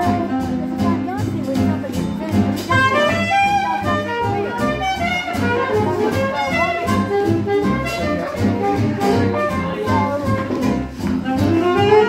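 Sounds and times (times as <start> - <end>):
bass line: 0.0 - 12.0
piano: 0.0 - 12.0
horn melody: 2.6 - 12.0.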